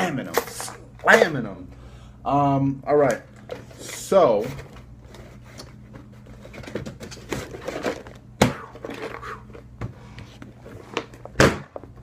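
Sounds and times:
packaging crinkling and rustling: 3.9 - 9.6.

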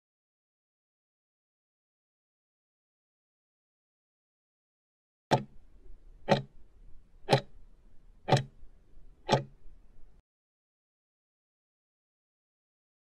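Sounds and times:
countdown timer ticking: 6.3 - 6.5, 7.3 - 7.5, 8.3 - 8.6, 9.3 - 9.5.

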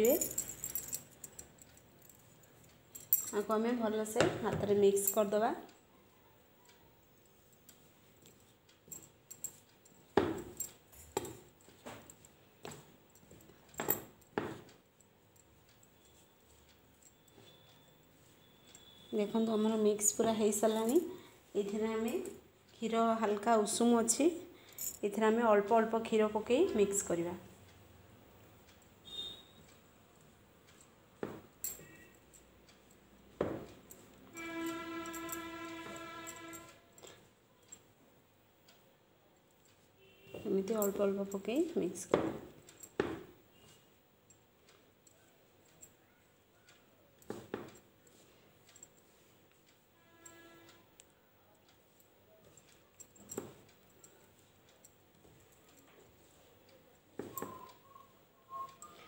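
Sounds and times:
steady horn-like tone: 34.3 - 36.9, 50.0 - 50.9.

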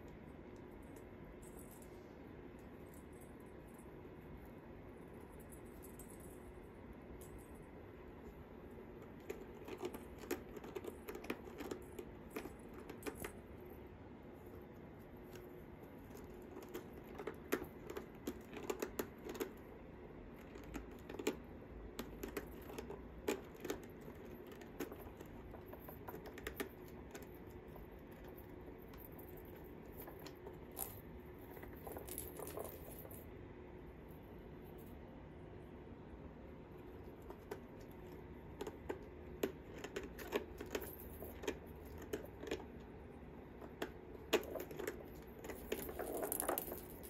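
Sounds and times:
faint steady hum: 0.0 - 47.0
cat toys clicking and rattling: 9.0 - 13.8, 14.5 - 19.6, 20.3 - 33.3, 37.0 - 42.9, 43.5 - 47.0.

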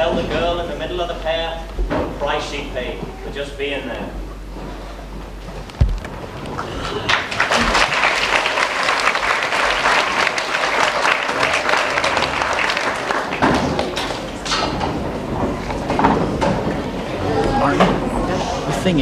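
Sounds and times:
audience applauding: 6.5 - 14.5.

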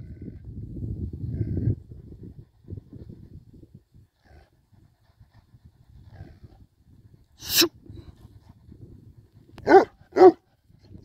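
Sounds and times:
dog barking: 9.6 - 10.4.

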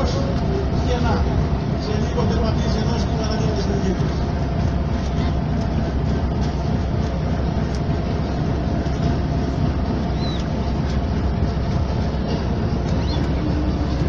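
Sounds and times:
boat engine rumbling: 0.0 - 14.0.

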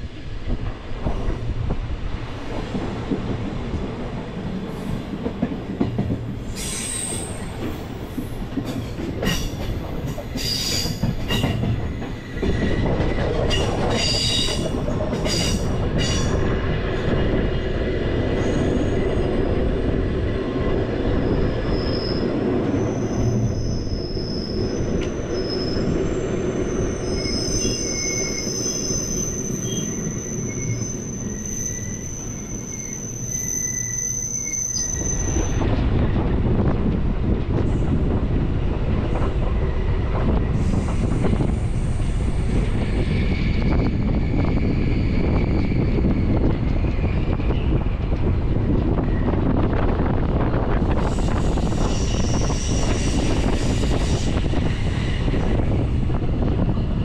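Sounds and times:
train rumbling on rails: 0.0 - 57.0
high thin wheel squeal: 21.6 - 35.6.

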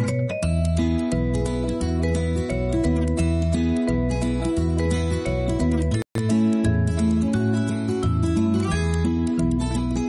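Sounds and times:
bass line: 0.0 - 10.0
plucked melody: 0.0 - 10.0.

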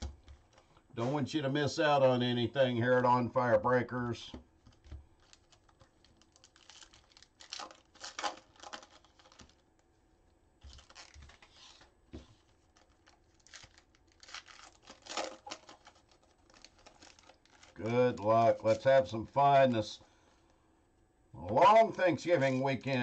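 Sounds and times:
foil wrapper tearing and crinkling: 4.7 - 9.8, 10.6 - 19.4.

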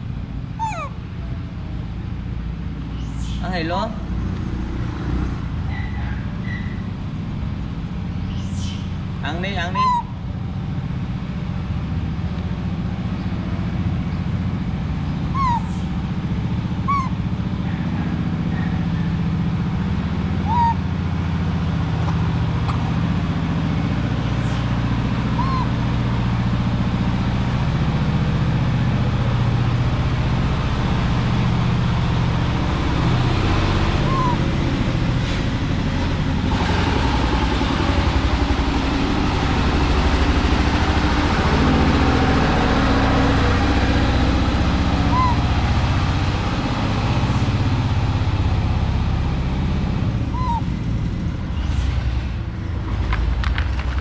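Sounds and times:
engine running with low hum: 0.0 - 54.0.

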